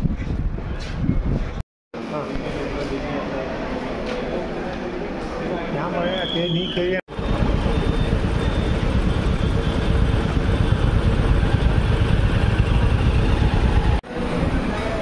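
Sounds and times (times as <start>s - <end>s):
motorcycle engine running: 7.1s - 14.0s.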